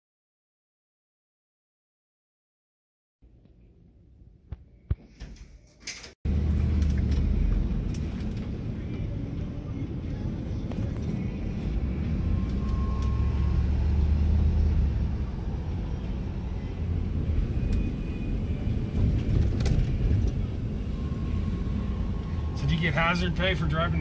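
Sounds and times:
engine and road rumble: 6.0s - 24.0s.

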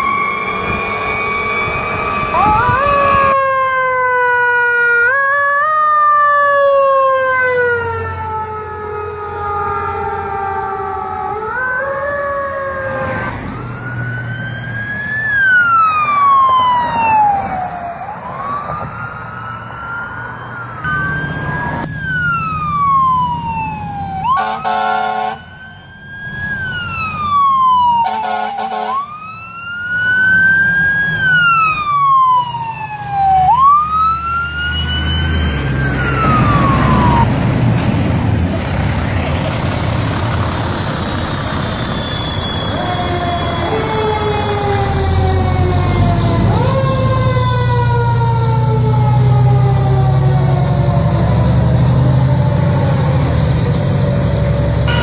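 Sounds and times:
fire truck engine rumbling: 0.0s - 55.0s
fire truck sirens wailing: 0.0s - 55.0s
air horn blasts: 24.3s - 25.5s, 28.0s - 29.1s.

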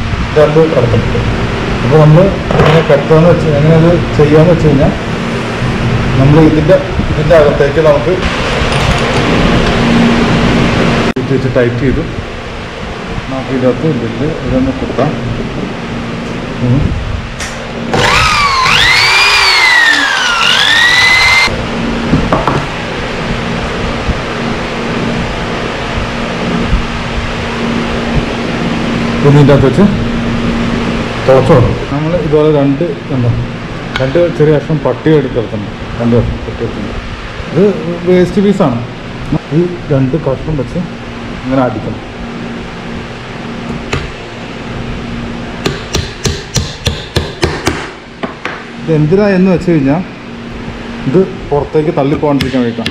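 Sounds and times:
steady hiss with low hum: 0.0s - 18.0s, 21.0s - 52.9s
rising electronic tone: 17.7s - 22.1s
hammer nailing into wood: 45.6s - 48.6s.

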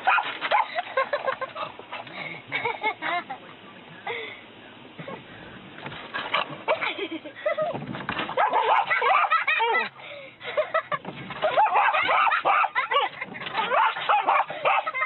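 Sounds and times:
high dog yips: 0.0s - 0.7s, 8.4s - 9.5s, 11.4s - 15.0s
dog barking and yelping: 0.0s - 0.8s, 8.4s - 9.8s, 11.4s - 15.0s.

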